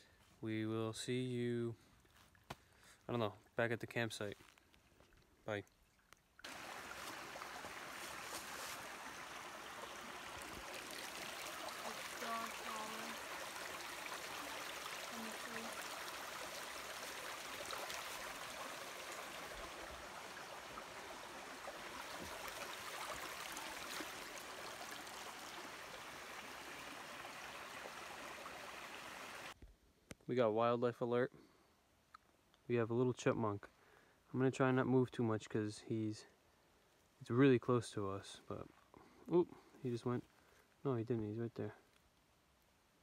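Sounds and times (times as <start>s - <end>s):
stream flowing over stones: 4.6s - 29.6s.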